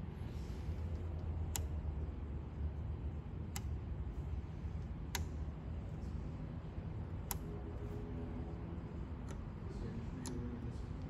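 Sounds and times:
steady low hum: 0.0s - 11.0s
selector knob clicking: 1.0s - 1.8s, 3.4s - 3.8s, 5.0s - 5.5s.

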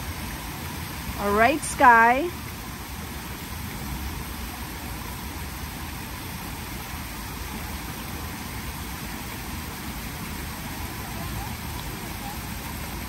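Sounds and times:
waterfall splashing into pool: 0.0s - 13.0s.

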